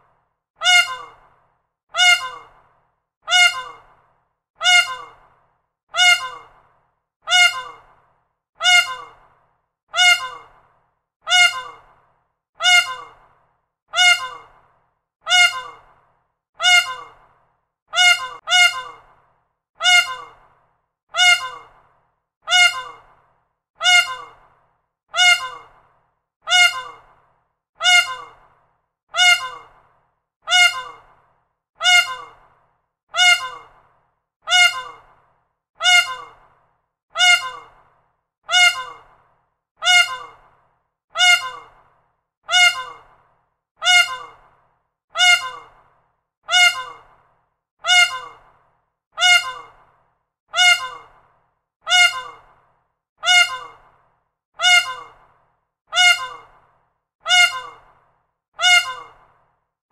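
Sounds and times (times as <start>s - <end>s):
peacock calling: 0.6s - 1.2s, 2.0s - 2.6s, 3.3s - 3.9s, 4.6s - 5.2s, 6.0s - 6.5s, 7.3s - 7.9s, 8.6s - 9.2s, 10.0s - 10.6s, 11.3s - 11.9s, 12.6s - 13.2s, 14.0s - 14.6s, 15.3s - 15.9s, 16.6s - 17.2s, 18.0s - 19.1s, 19.8s - 20.4s, 21.2s - 21.8s, 22.5s - 23.1s, 23.8s - 24.4s, 25.2s - 25.8s, 26.5s - 27.1s, 27.8s - 28.4s, 29.2s - 29.8s, 30.5s - 31.1s, 31.8s - 32.4s, 33.2s - 33.8s, 34.5s - 35.1s, 35.8s - 36.4s, 37.2s - 37.8s, 38.5s - 39.1s, 39.8s - 40.4s, 41.2s - 41.8s, 42.5s - 43.1s, 43.8s - 44.4s, 45.2s - 45.8s, 46.5s - 47.1s, 47.8s - 48.4s, 49.2s - 49.8s, 50.6s - 51.2s, 51.9s - 52.5s, 53.2s - 53.8s, 54.6s - 55.2s, 55.9s - 56.5s, 57.3s - 57.9s, 58.6s - 59.2s.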